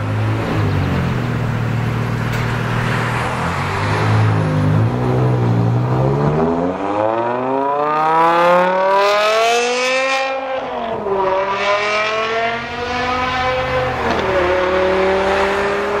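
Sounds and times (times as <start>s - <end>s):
car engine accelerating hard: 0.0s - 16.0s.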